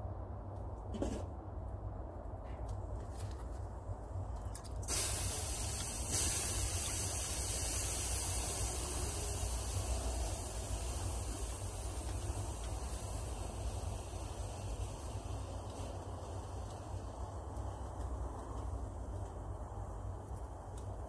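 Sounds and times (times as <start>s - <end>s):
steam hissing: 4.8s - 21.0s.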